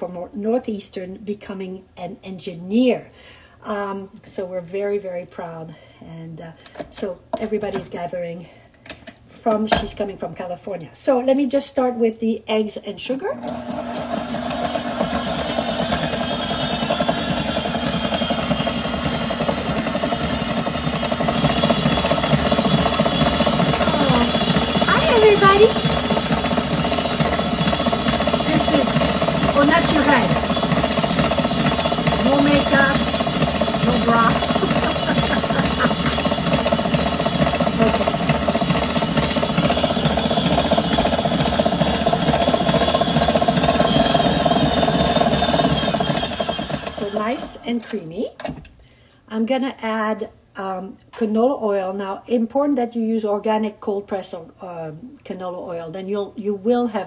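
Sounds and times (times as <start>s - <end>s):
stand mixer whipping in steel bowl: 13.4s - 47.6s.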